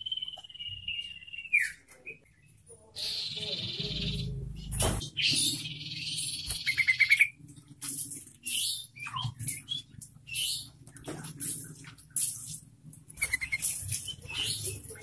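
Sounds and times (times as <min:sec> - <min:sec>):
bird chirps: 0:00.0 - 0:07.4, 0:08.4 - 0:15.0.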